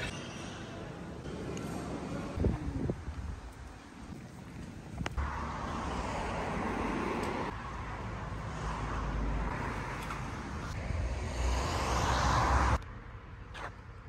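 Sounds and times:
vehicle going by: 5.2 - 12.8.

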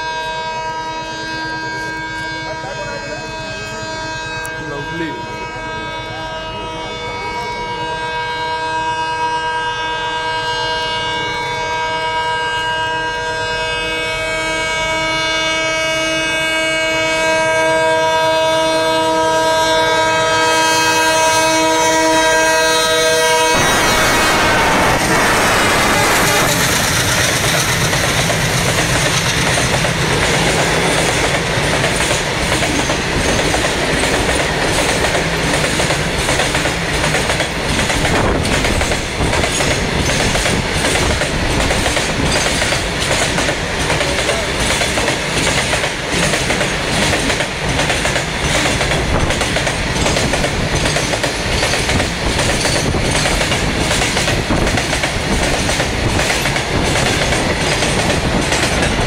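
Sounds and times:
freight train wheels clattering: 16.2 - 59.0.

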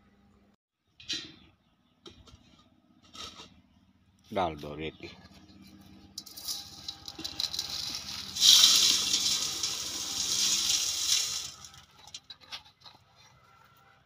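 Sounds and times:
sand pouring into bucket: 6.3 - 12.1.

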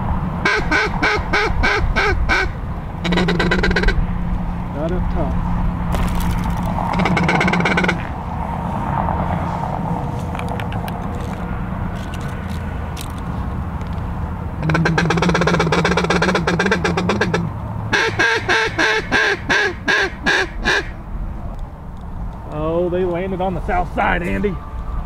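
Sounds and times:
duck call quacks: 0.4 - 4.0, 6.9 - 8.1, 14.6 - 21.0
duck call feed chatter: 0.5 - 4.0, 6.9 - 8.0, 14.6 - 21.0.

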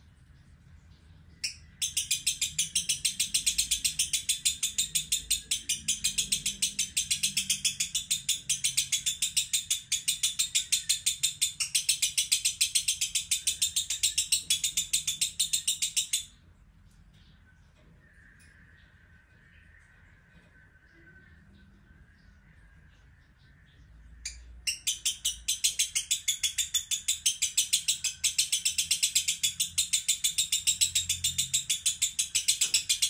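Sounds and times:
lovebird chattering: 1.4 - 16.4, 24.2 - 33.0.

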